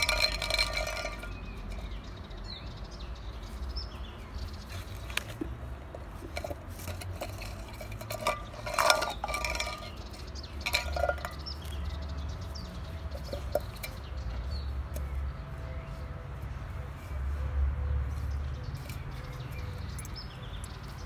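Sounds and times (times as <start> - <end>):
tin can clattering on concrete: 0.0 - 2.0, 6.3 - 11.8, 13.1 - 14.1.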